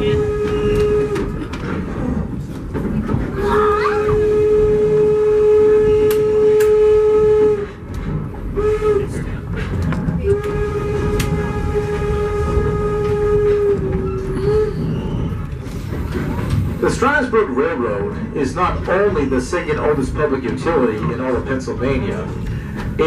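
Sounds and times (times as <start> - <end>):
steam locomotive whistle: 0.0 - 1.4, 3.5 - 7.8, 8.5 - 9.2, 10.2 - 15.4
train wheels clattering on rails: 0.0 - 23.0.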